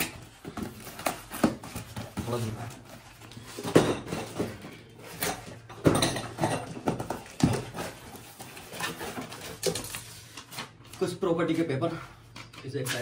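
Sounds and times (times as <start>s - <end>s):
tools and parts clattering: 0.0s - 11.0s.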